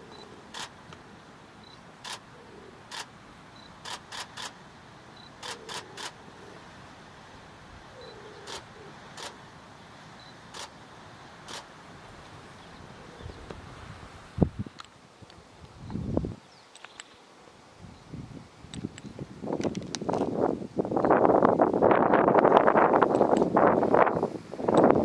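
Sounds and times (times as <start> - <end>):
faint steady hiss: 0.0 - 25.0
camera shutter clicks: 0.5 - 0.7, 2.0 - 2.2, 2.9 - 3.1, 3.8 - 4.6, 5.4 - 6.2, 8.4 - 9.4, 10.5 - 10.7, 11.5 - 11.7.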